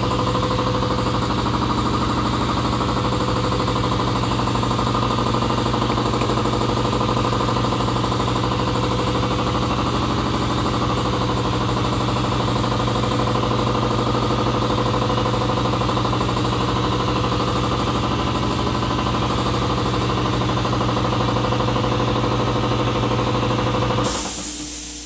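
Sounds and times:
air compressor humming: 0.0s - 25.0s
short air hiss: 24.0s - 25.0s.

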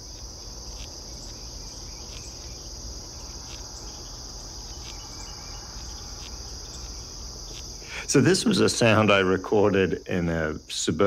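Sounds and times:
larva chewing wood: 0.0s - 7.9s
high-pitched insect chorus: 0.0s - 11.0s.

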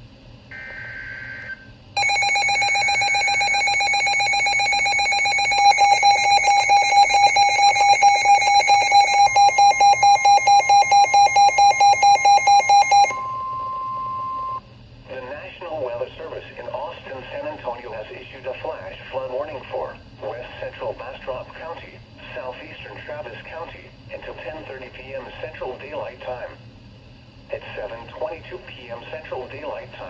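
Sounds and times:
electronic alarm with pulsing beep: 0.5s - 14.6s
steady warning alarm tone: 0.5s - 14.6s
two-pitch data tones: 2.0s - 14.6s.

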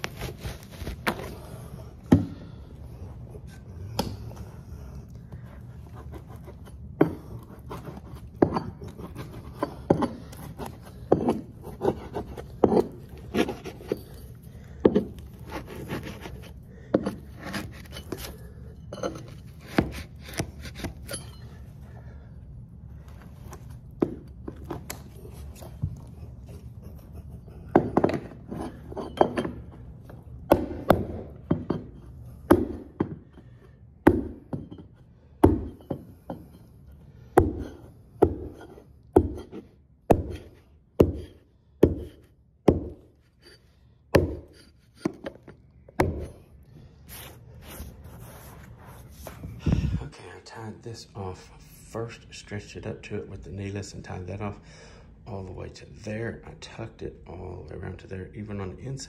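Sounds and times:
metal tool scraping carpet: 0.0s - 1.4s, 5.8s - 21.5s, 25.2s - 29.8s, 37.5s - 42.4s, 43.0s - 46.4s, 47.0s - 49.7s.

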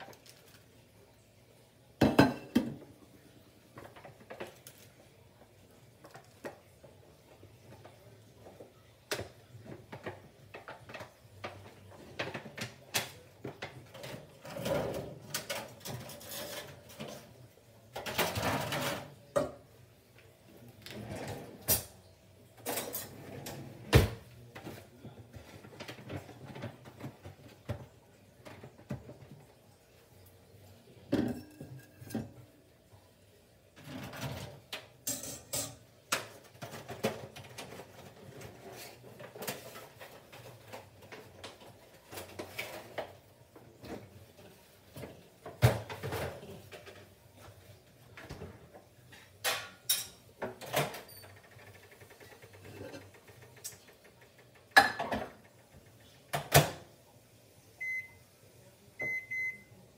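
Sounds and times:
kitchen knocks and clatter: 2.0s - 3.0s, 3.7s - 4.9s, 6.0s - 19.7s, 22.6s - 29.5s, 31.0s - 32.5s, 33.8s - 56.9s.

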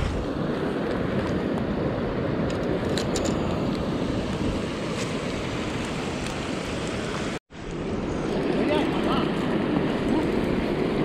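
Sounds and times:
river rushing: 3.4s - 11.0s.

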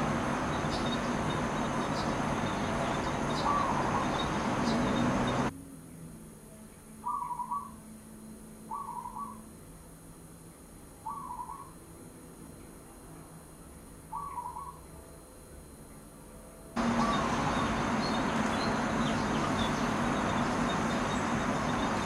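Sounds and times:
dove cooing: 1.4s - 5.5s, 7.0s - 7.8s, 8.7s - 9.4s, 14.1s - 14.8s, 16.8s - 22.0s.

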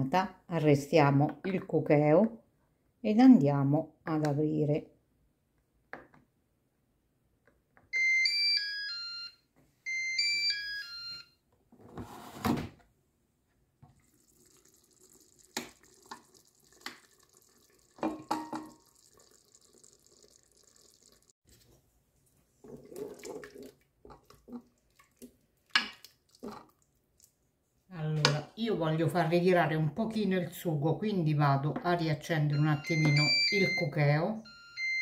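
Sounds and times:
electronic beep tune: 32.5s - 35.0s.

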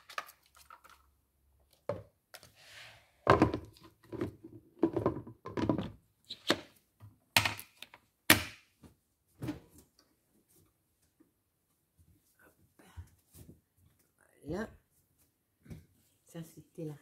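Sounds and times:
plastic lid knocks and clunks: 3.3s - 6.0s.

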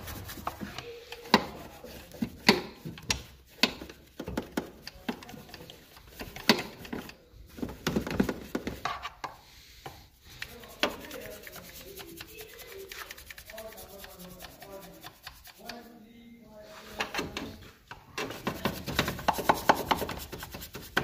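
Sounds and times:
brush scrubbing: 0.0s - 16.0s, 18.2s - 21.0s.

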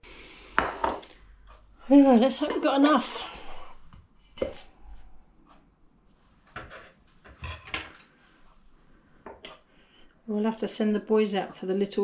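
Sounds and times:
metal dish knocking and clattering: 6.6s - 8.0s.

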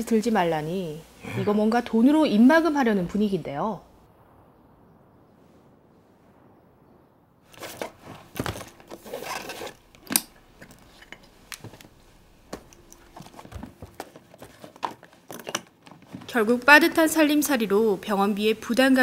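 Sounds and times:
paper rustling: 7.5s - 9.9s.

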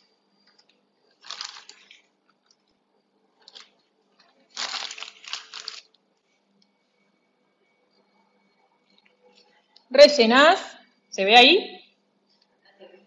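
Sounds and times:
plastic piping bag crinkling: 1.1s - 2.7s, 3.4s - 6.0s.

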